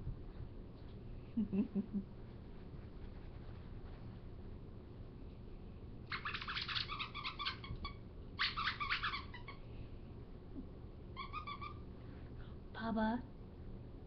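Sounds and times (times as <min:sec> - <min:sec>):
puppy yipping: 0:06.1 - 0:09.6, 0:11.2 - 0:11.8.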